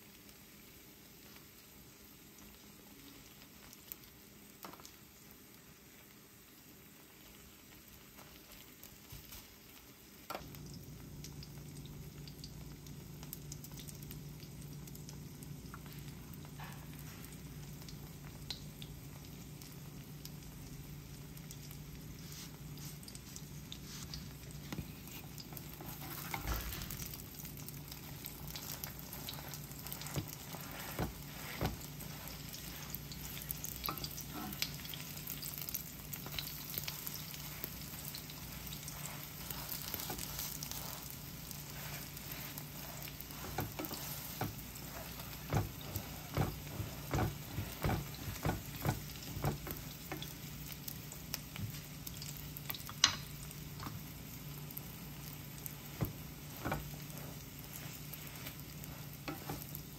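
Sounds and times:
food sizzling in frying pan: 0:00.0 - 0:59.9
spatula tapping and scraping pan: 0:27.8 - 0:50.4, 0:52.7 - 0:53.9, 0:55.9 - 0:59.9.

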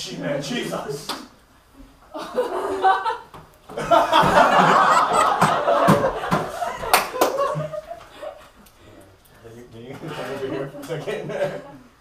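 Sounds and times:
teenagers laughing: 0:02.1 - 0:08.7, 0:10.2 - 0:11.9.

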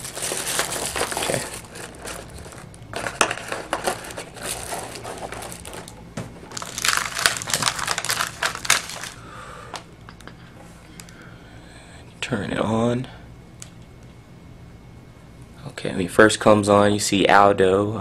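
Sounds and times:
packaging crinkling and rustling: 0:00.0 - 0:09.2.

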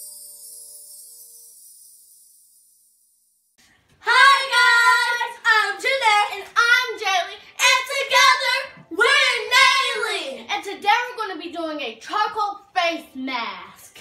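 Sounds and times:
girls singing together: 0:04.0 - 0:10.4.

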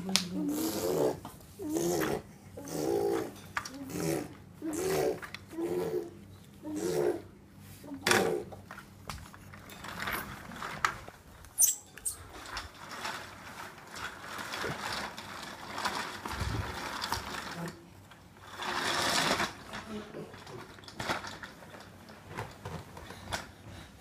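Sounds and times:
baby walker rolling on tiles: 0:08.1 - 0:11.4, 0:12.0 - 0:23.9.

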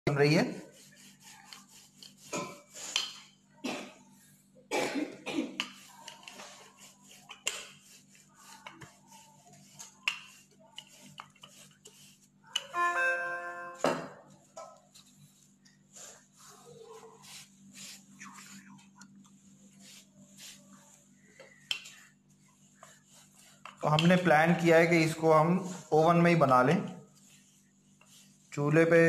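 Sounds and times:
short held musical tone: 0:12.7 - 0:13.8.

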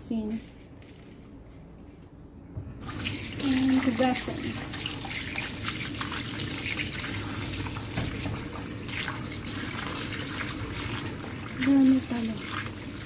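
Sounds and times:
hand splashing rinsing fish: 0:02.8 - 0:13.0
tap running into basin: 0:02.8 - 0:13.0.

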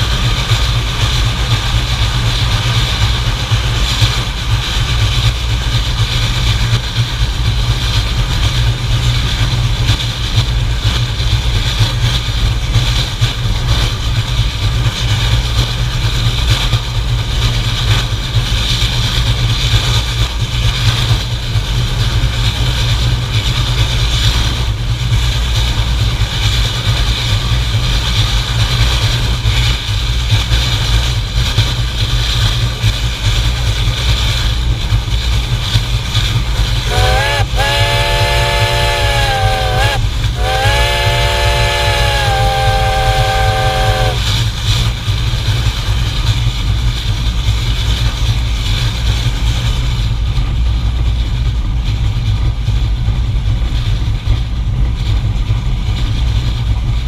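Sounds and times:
steam locomotive running rumble: 0:00.0 - 0:57.0.

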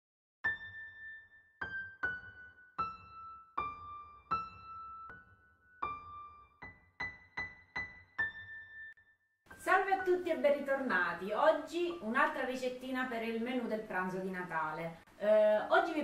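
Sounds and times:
slow high keyboard melody: 0:00.5 - 0:09.6.

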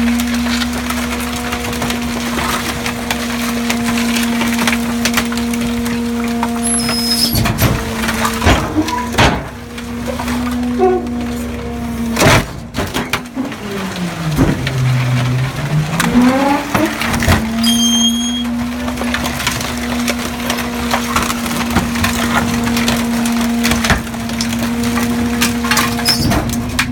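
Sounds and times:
splintering wood cracking: 0:00.0 - 0:26.9.

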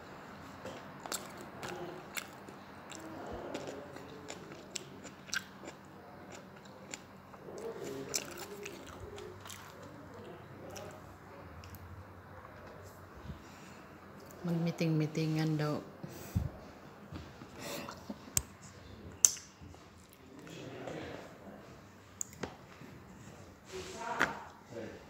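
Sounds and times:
person chewing: 0:00.6 - 0:11.0
mouth clicks and smacks: 0:19.2 - 0:20.2.

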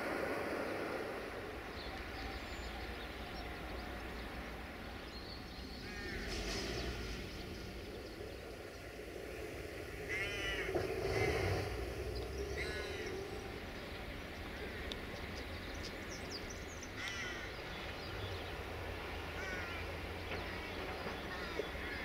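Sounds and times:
low outdoor rumble: 0:00.0 - 0:22.0
crows cawing: 0:05.8 - 0:06.3, 0:10.1 - 0:11.6, 0:12.6 - 0:13.1, 0:17.0 - 0:17.5, 0:19.3 - 0:19.9, 0:21.3 - 0:22.0.

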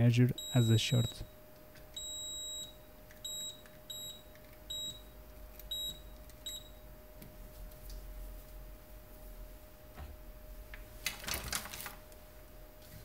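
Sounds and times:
multimeter beeping: 0:00.3 - 0:06.8.

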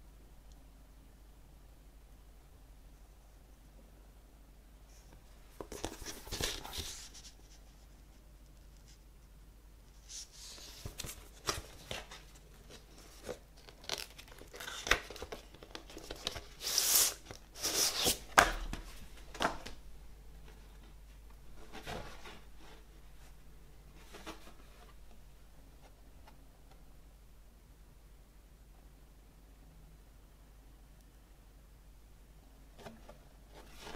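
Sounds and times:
paper rustling and crinkling: 0:05.6 - 0:07.6, 0:10.0 - 0:19.8.

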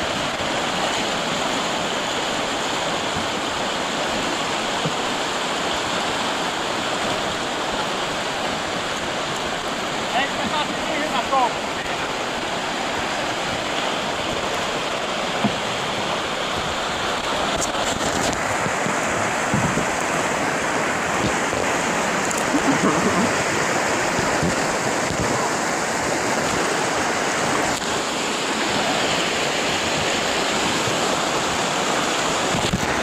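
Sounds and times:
water rushing over rocks: 0:00.0 - 0:33.0.

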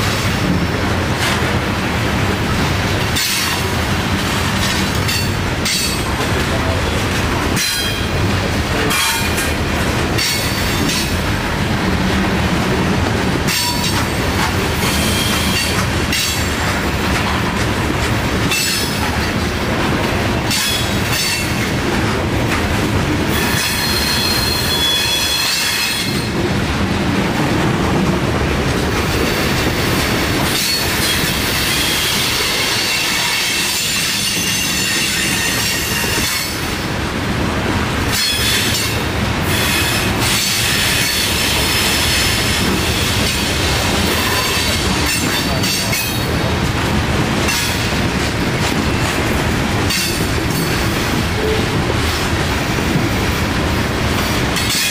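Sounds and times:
clacks over rail joints: 0:00.0 - 0:36.9, 0:37.5 - 0:54.9
steel wheels rumbling on rail: 0:00.0 - 0:54.9
high metallic wheel squeal: 0:14.9 - 0:15.7, 0:23.3 - 0:26.3.

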